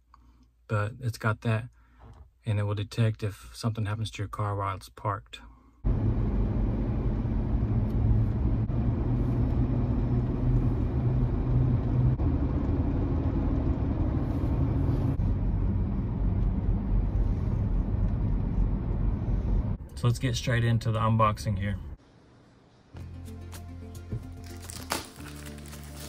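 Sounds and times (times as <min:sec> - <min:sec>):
vehicle rumble: 0:05.8 - 0:22.0.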